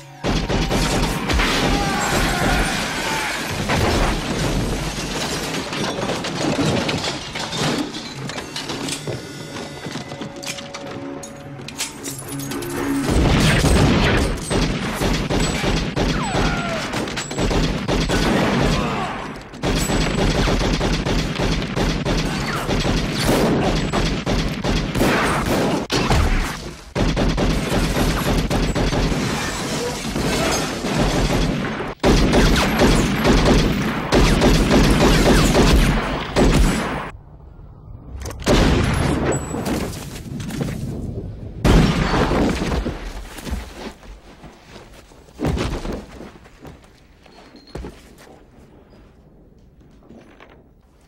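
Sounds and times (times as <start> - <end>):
film score music: 8.1 - 14.9
rapid gunfire: 19.6 - 29.5.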